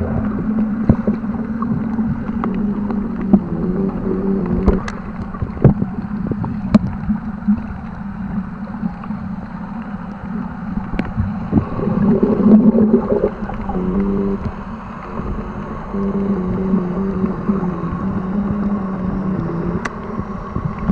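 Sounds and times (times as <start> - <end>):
boat engine drone underwater: 0.0 - 20.9
water bubbling and gurgling: 0.0 - 20.9.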